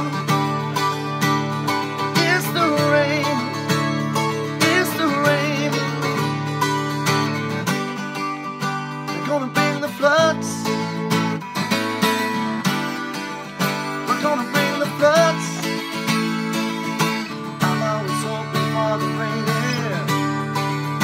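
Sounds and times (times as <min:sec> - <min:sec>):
wordless voice singing: 0:00.0 - 0:06.6, 0:09.1 - 0:11.0, 0:12.4 - 0:16.4, 0:17.3 - 0:21.0
acoustic guitar strumming: 0:00.0 - 0:21.0.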